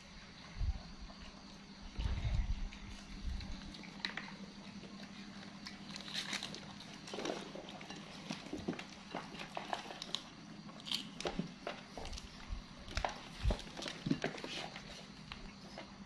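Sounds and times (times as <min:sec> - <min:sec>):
monkeys chewing raw beans: 0:02.6 - 0:15.9.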